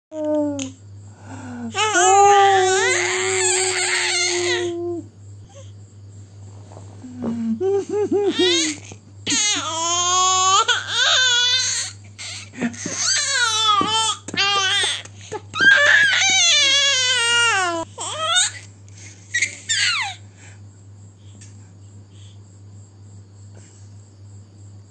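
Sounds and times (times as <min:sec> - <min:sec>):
baby babbling: 0:01.8 - 0:05.0, 0:08.4 - 0:15.0, 0:15.6 - 0:18.6
baby squealing happily: 0:08.3 - 0:18.6.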